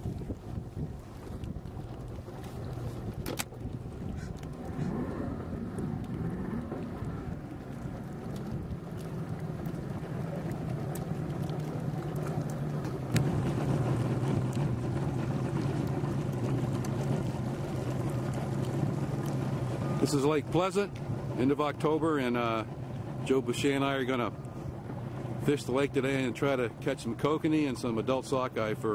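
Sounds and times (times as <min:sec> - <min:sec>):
wind noise: 0:00.0 - 0:07.7
boat motor droning: 0:00.0 - 0:28.9
water noise: 0:00.0 - 0:28.9.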